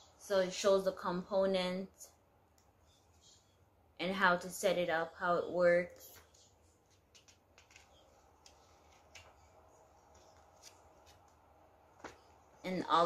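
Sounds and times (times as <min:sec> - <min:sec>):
paper manual rustling: 0:06.9 - 0:11.4.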